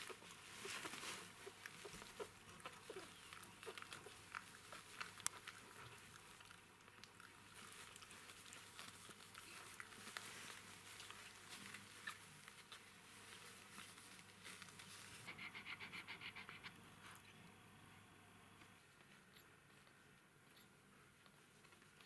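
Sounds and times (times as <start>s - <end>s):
puppies squeaking and rustling: 0.0s - 6.4s.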